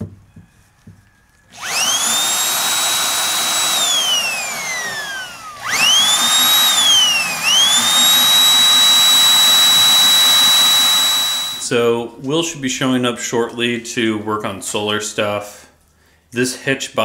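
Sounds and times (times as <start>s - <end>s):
electric drill whining: 1.0s - 11.7s.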